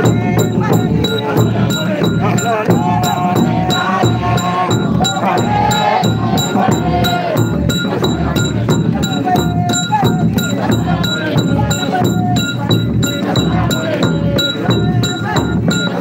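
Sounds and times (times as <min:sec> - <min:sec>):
hymn singing: 0:00.0 - 0:16.0
percussion beat: 0:00.0 - 0:16.0.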